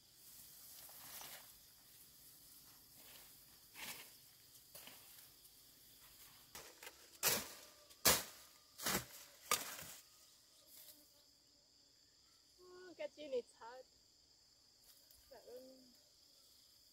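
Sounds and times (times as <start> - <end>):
faint high insect drone: 0.0 - 16.9
grass stalks rustling and snapping: 0.3 - 1.7, 6.1 - 10.0.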